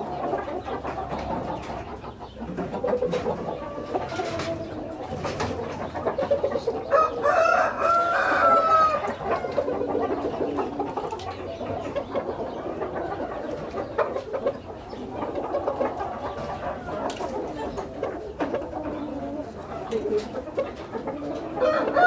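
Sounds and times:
bird calls: 0.0 - 22.0
hens clucking: 0.0 - 22.0
rooster crowing: 6.9 - 9.0, 21.6 - 22.0.

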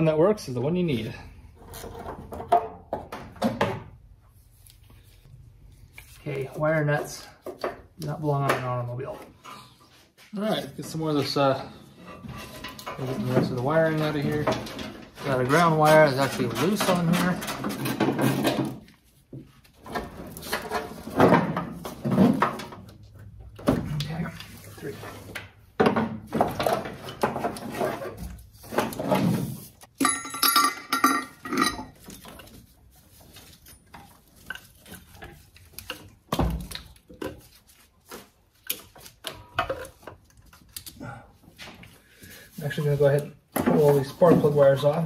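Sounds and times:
wiring rustling and clicking: 32.0 - 41.0.

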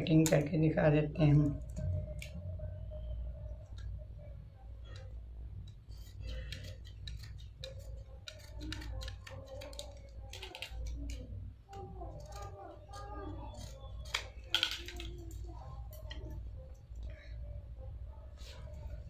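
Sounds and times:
low steady hum: 0.0 - 19.0
scissors snipping cloth: 5.0 - 14.5.

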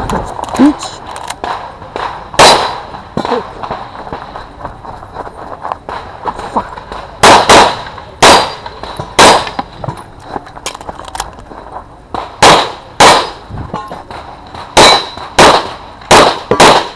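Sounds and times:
pistol shots: 1.4 - 4.2, 6.8 - 9.7, 12.1 - 16.9.

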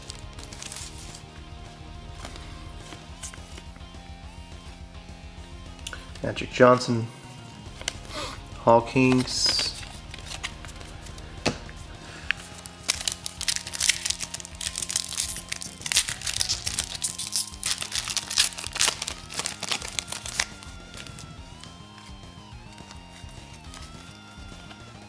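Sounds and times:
foil wrapper crinkling: 0.0 - 1.2, 12.3 - 21.3
background music: 0.0 - 25.0.

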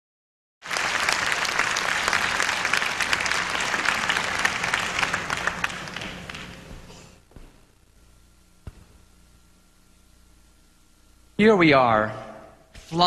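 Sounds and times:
audience applauding: 0.6 - 7.0.

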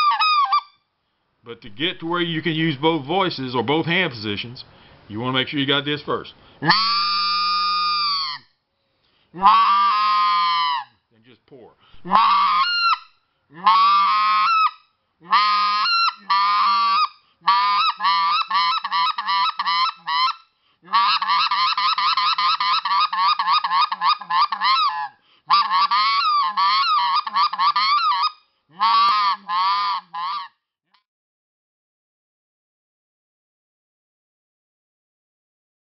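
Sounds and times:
goose call honks and clucks: 0.0 - 0.7, 6.6 - 8.4, 9.4 - 10.8, 12.0 - 30.6.

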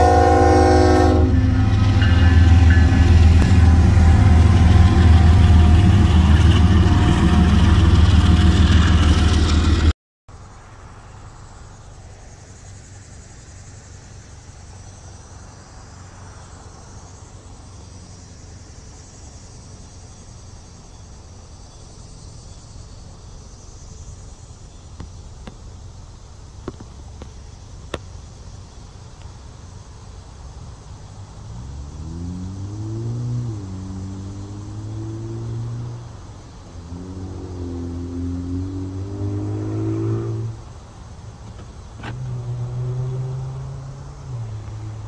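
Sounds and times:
car engine idling: 0.0 - 9.9, 10.8 - 31.5
vehicle accelerating: 0.0 - 10.0, 30.2 - 45.0
insects chirring: 10.3 - 45.0.

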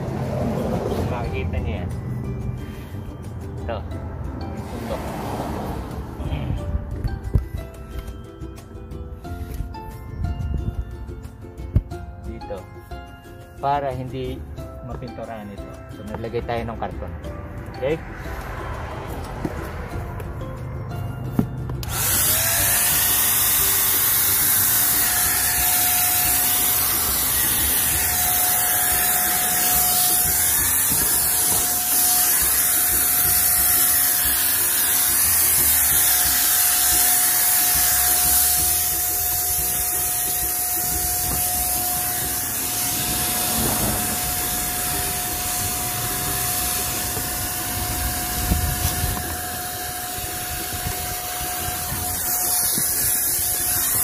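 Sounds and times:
paint sprayer motor whine: 21.8 - 54.0
paint spray hiss: 22.5 - 54.0.

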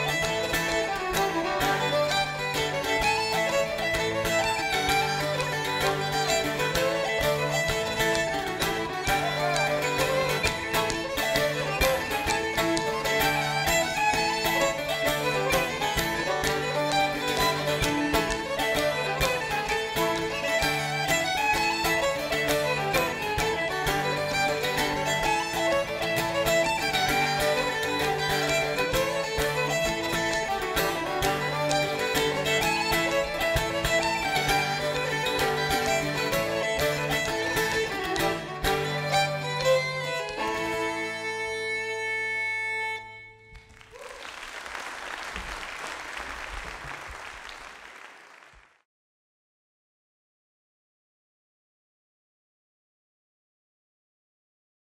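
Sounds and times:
plucked-string accompaniment: 0.0 - 43.8
fiddle playing quick notes: 0.0 - 44.0
audience applause: 8.4 - 14.7, 43.6 - 48.8.

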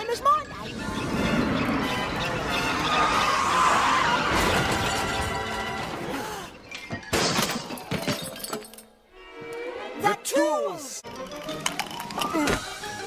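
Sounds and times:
loud cartoon crash: 2.9 - 5.6
metal tools clattering on floor: 6.7 - 8.9.

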